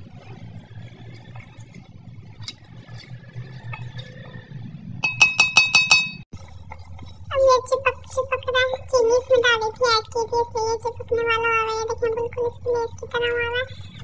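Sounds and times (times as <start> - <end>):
ringing metallic taps: 5.0 - 6.2.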